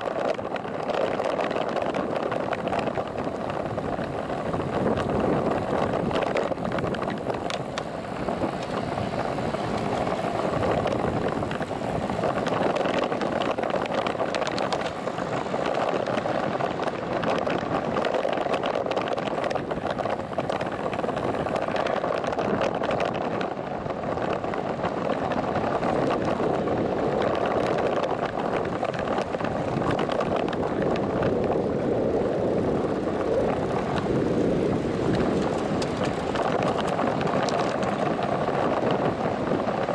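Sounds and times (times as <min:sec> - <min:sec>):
small clicks and rattles: 0:00.0 - 0:31.7, 0:34.9 - 0:39.9
bicycle road noise: 0:00.0 - 0:39.9
wind rushing over microphone: 0:00.0 - 0:39.9.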